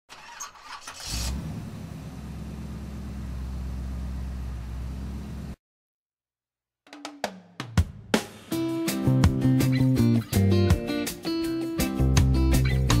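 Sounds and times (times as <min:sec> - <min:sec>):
car engine running: 0:01.3 - 0:05.6.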